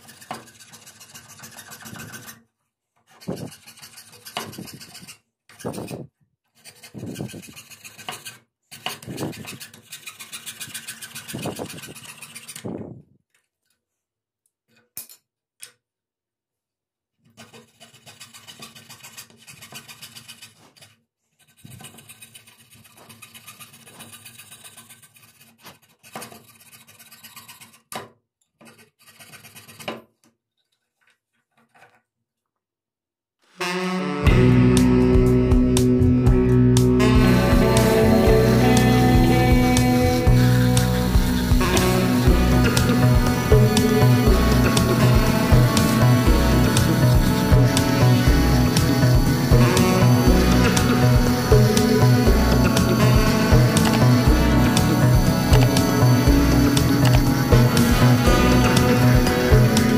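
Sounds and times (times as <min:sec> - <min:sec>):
coping saw rasping through wood: 0:00.0 - 0:02.5, 0:03.1 - 0:12.8, 0:17.3 - 0:27.9, 0:28.6 - 0:30.0, 0:37.0 - 0:59.9.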